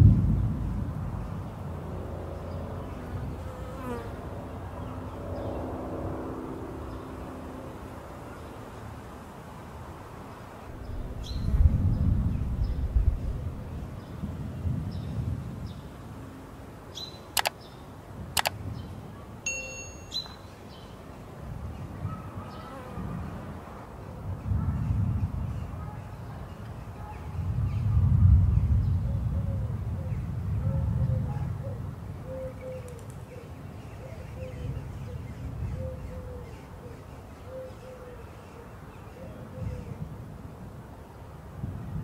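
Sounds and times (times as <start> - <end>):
mouse-click sound effects: 17.4 - 17.6
bright electronic chime: 19.5 - 20.3.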